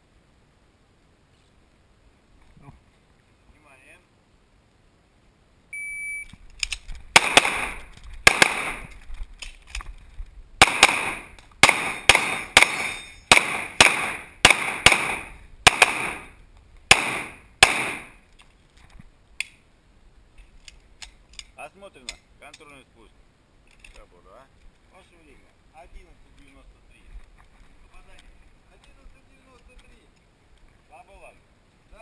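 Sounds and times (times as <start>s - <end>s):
shot timer beep: 5.7s - 6.3s.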